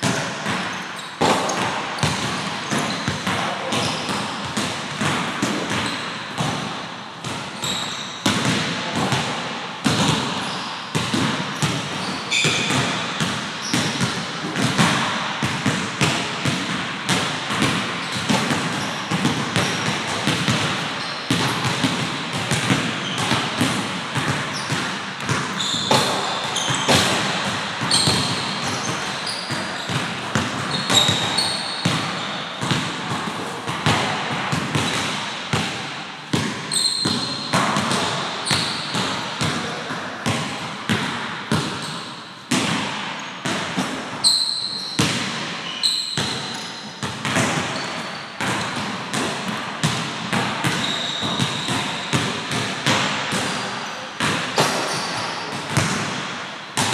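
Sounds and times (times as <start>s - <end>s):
sneaker squeaks: 0.0s - 4.7s, 5.4s - 9.2s, 9.8s - 14.7s, 17.5s - 33.6s, 36.4s - 39.1s, 41.6s - 42.3s, 43.1s - 48.8s, 50.6s - 52.5s, 53.3s - 56.9s
basketballs bouncing on hardwood: 0.0s - 53.6s, 54.2s - 56.9s.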